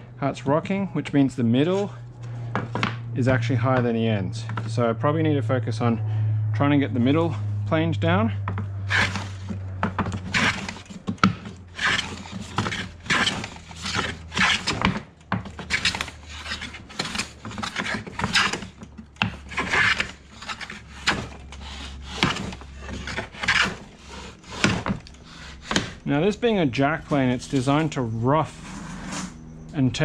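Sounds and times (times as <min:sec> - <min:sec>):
hand plane rasping on wood: 0:08.8 - 0:26.1.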